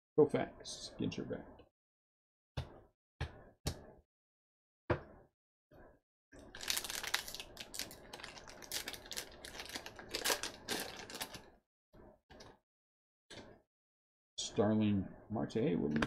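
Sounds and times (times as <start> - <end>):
wrapper tearing and crinkling: 6.4 - 11.5.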